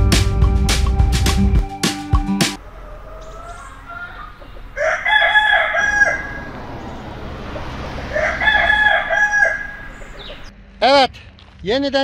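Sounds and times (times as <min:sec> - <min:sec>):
rooster crowing: 0:02.6 - 0:10.5.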